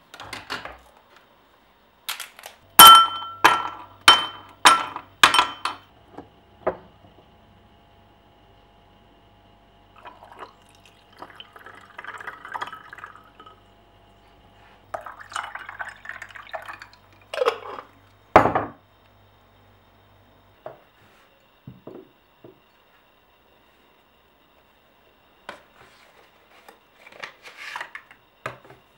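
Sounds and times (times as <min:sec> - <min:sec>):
tea pouring over ice: 0:10.0 - 0:13.6, 0:15.0 - 0:17.9.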